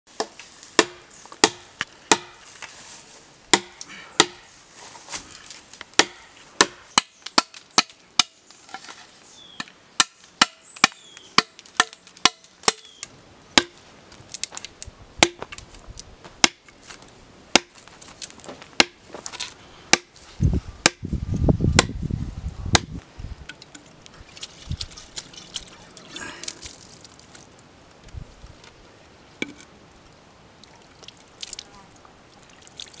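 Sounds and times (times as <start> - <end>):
blade chopping bamboo: 0.2 - 2.4, 3.5 - 4.4, 6.0 - 8.4, 10.0 - 12.9, 17.6 - 17.8, 19.9 - 20.1.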